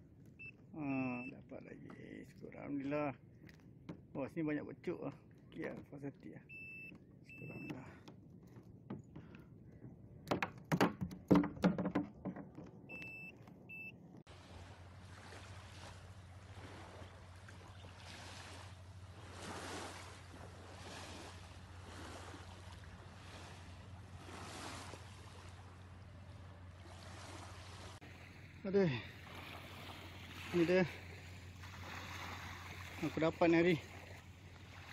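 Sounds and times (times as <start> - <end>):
short high beeps: 0.4 - 1.4, 6.4 - 7.8, 12.9 - 14.0
knocks on plastic kayak deck: 8.0 - 12.8
water swishing: 14.3 - 34.9.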